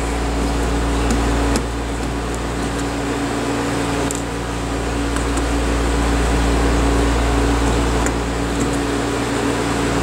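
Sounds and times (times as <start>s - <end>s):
machine hum: 0.0s - 10.0s.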